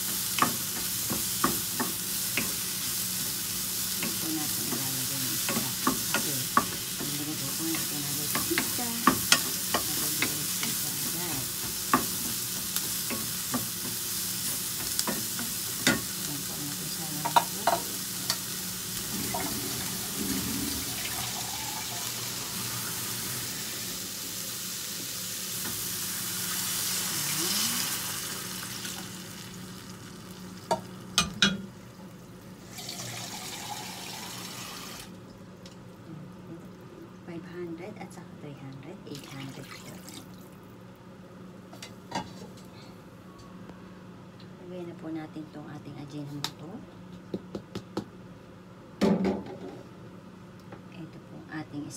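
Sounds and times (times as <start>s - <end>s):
vegetables sizzling in oil: 0.0s - 35.2s.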